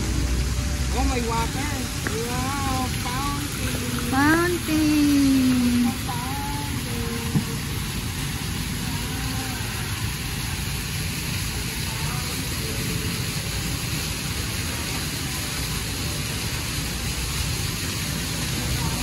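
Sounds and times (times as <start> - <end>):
fountain water splashing: 0.0 - 19.0
faint voices: 0.8 - 13.6.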